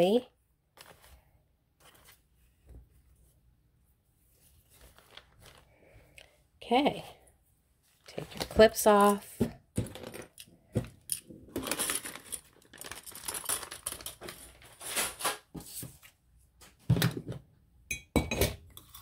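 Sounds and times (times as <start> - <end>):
paper rustling: 0.7 - 3.2, 4.3 - 6.1, 11.6 - 16.2.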